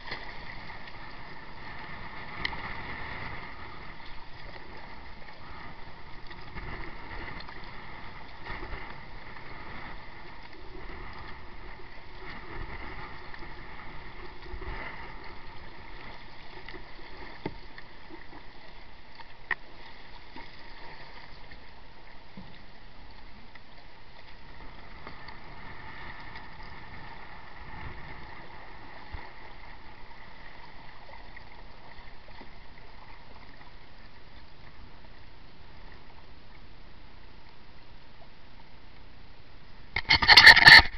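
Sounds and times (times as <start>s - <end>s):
water sloshing against kayak hull: 39.8s - 40.9s.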